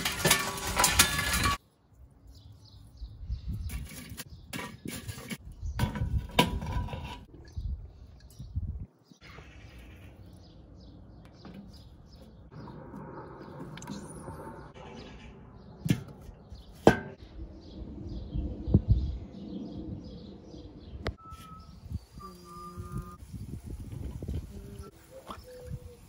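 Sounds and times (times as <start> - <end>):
small birds chirping: 1.8 - 4.9, 7.4 - 16.9, 17.6 - 26.0
low rumble: 12.5 - 15.8, 17.2 - 21.2.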